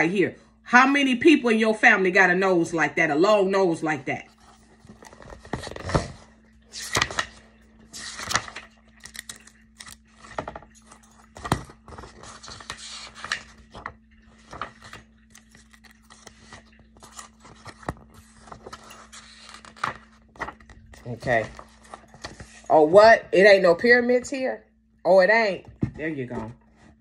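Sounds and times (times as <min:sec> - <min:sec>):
faint steady hum: 0:00.0 - 0:27.0
book pages turning: 0:04.2 - 0:22.8
paper rustling: 0:04.3 - 0:22.7.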